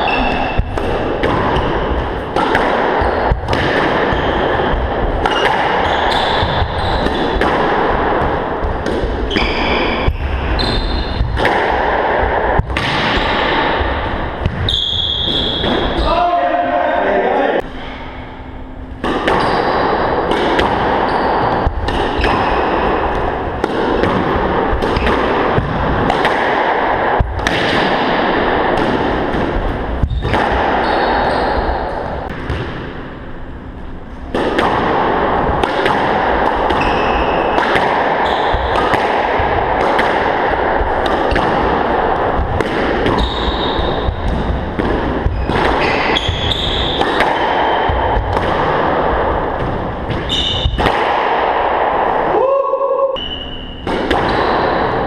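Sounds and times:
squash ball cracking off walls: 0.0 - 16.0, 19.0 - 30.8, 34.3 - 52.2, 53.8 - 55.0
noisy din: 0.0 - 55.0
shoes squeaking on wooden floor: 43.1 - 44.1.

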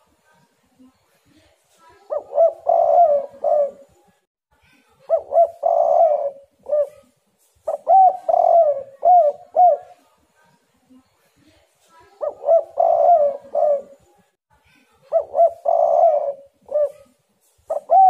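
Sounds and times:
dove cooing: 2.1 - 4.0, 5.1 - 10.0, 12.2 - 14.1, 15.1 - 18.0.

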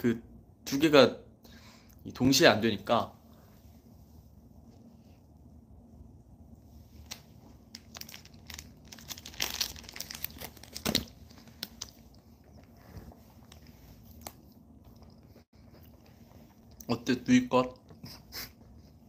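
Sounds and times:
plastic wrapper crinkling: 7.0 - 12.2.

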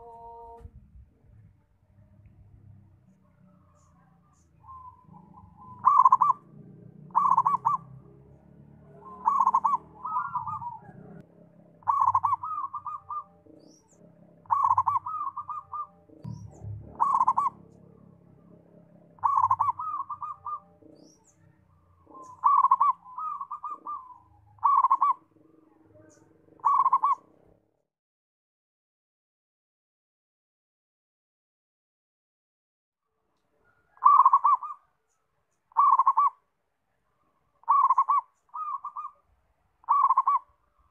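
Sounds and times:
dove cooing: 0.0 - 0.6, 3.2 - 8.2, 8.9 - 27.6, 33.6 - 35.0, 35.7 - 36.4, 37.6 - 39.2, 39.8 - 40.9.

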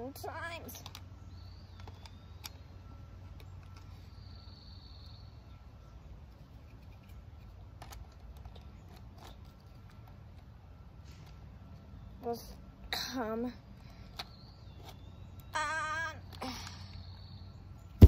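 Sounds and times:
plastic toy clicks and knocks: 0.7 - 1.1.

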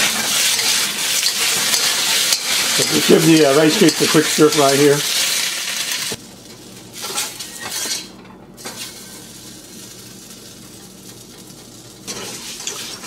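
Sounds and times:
metal spatula scraping wok: 12.1 - 13.0.

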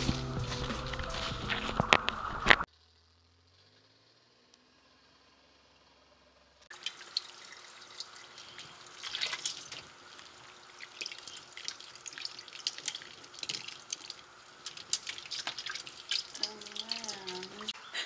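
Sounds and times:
foam bubbles crackling: 6.7 - 17.8
water splashing in a basin: 6.7 - 17.8.

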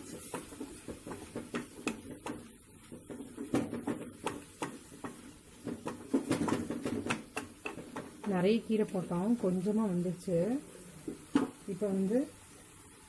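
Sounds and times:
wooden spatula scraping a pan: 0.0 - 8.3.

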